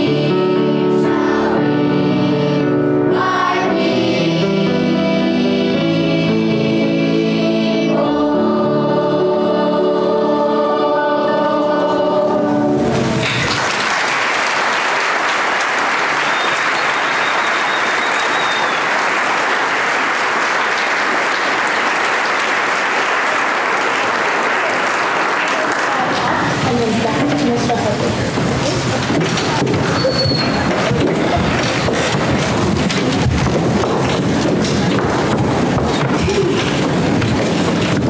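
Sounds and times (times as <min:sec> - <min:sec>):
children's choir singing: 0:00.0 - 0:13.9, 0:14.6 - 0:26.6
piano accompaniment: 0:00.0 - 0:38.0
audience applause: 0:13.0 - 0:26.7.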